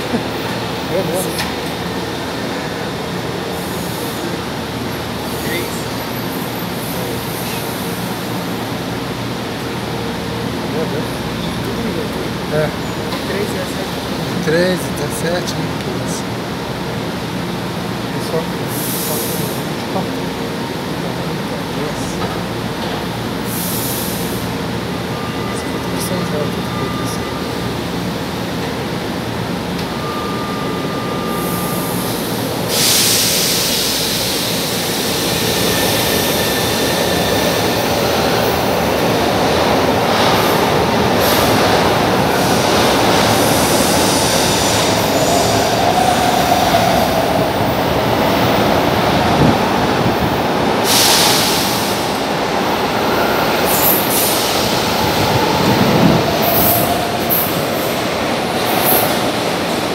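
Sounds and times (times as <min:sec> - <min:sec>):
train motors and wheels running: 0:00.0 - 0:59.9
air hiss burst: 0:32.7 - 0:36.1, 0:50.8 - 0:52.1.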